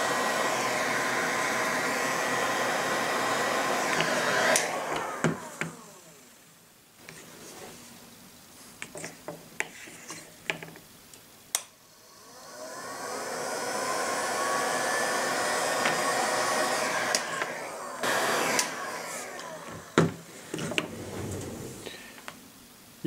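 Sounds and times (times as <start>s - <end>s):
heat gun blowing with whine: 0.0s - 6.4s, 11.9s - 22.0s.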